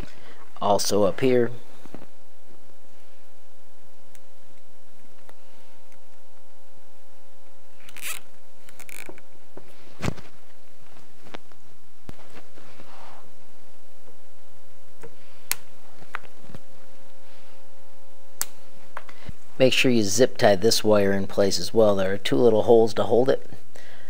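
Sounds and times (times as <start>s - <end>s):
zip tie sharp click: 7.8s - 9.2s
zip ties zipping: 7.8s - 9.2s.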